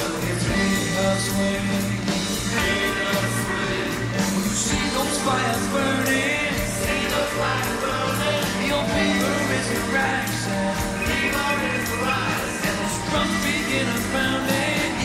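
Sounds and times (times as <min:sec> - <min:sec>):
bass line: 0:00.0 - 0:15.0
drum beat: 0:00.0 - 0:15.0
person singing: 0:00.0 - 0:15.0
rock and roll song: 0:00.0 - 0:15.0.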